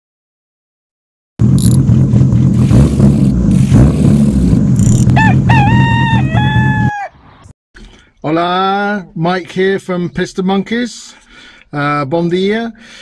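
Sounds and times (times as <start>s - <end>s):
loud rough low rumble: 1.4s - 6.8s
rooster crowing: 5.2s - 7.2s.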